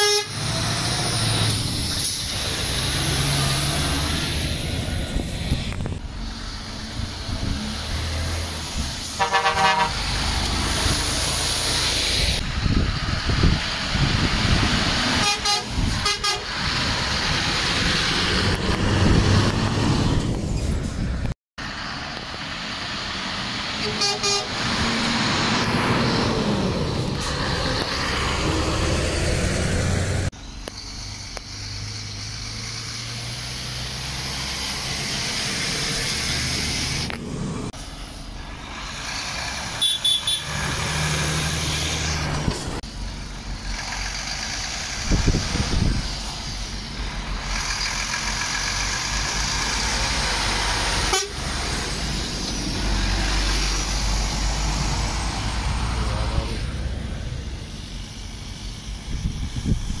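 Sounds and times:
truck horn toots: 0.0s - 0.5s, 9.2s - 10.1s, 15.2s - 16.6s, 23.8s - 24.6s, 39.8s - 40.7s, 51.0s - 51.5s
truck engines passing: 0.0s - 60.0s.

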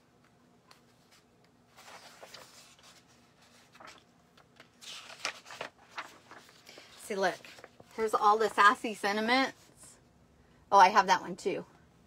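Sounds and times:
paper pages rustling: 0.7s - 8.6s.

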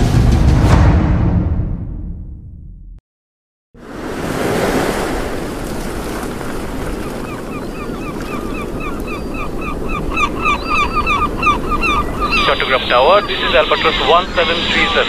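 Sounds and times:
sea waves: 3.8s - 15.0s
wind: 3.8s - 15.0s
seabird calling: 4.7s - 15.0s.

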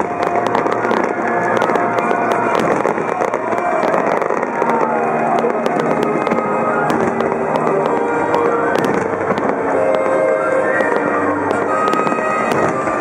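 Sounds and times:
fireworks bursting and crackling: 0.0s - 13.0s.

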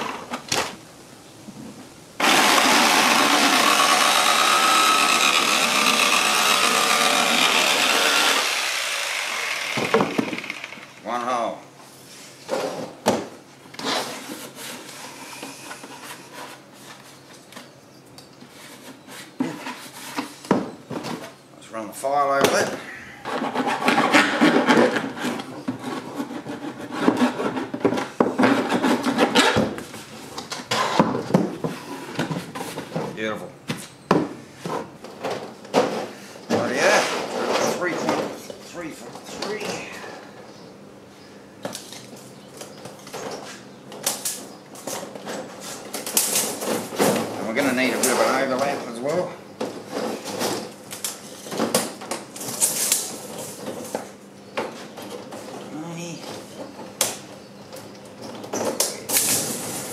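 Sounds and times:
jigsaw cutting plastic: 2.2s - 10.9s.

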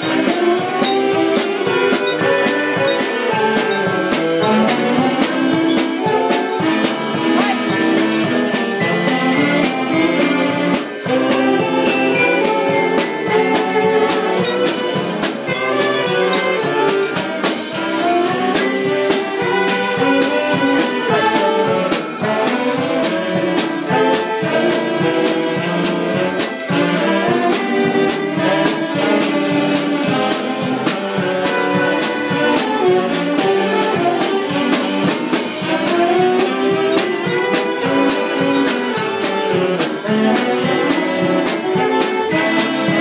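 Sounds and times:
bell-like jingle: 0.0s - 43.0s
saxophones and accordions: 0.0s - 43.0s
snare drum beat: 0.0s - 43.0s.

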